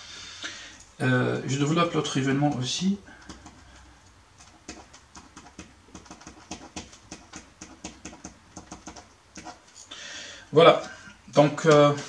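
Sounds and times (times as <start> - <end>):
pen writing on paper: 4.6 - 9.6.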